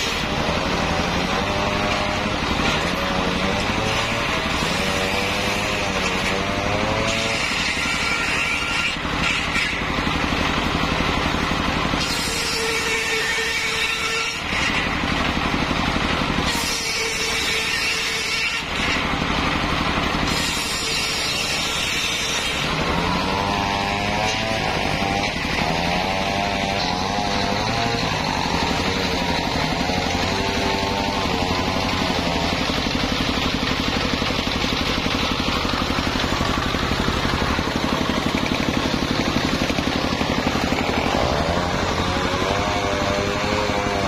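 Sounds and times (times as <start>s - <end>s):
diesel engine droning: 0.0s - 7.0s, 22.6s - 44.0s
circular saw blade cutting wood: 0.0s - 44.0s.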